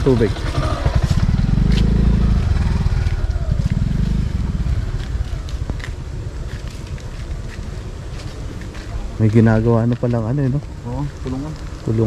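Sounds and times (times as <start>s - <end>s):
motorcycle engine running: 0.0s - 9.6s.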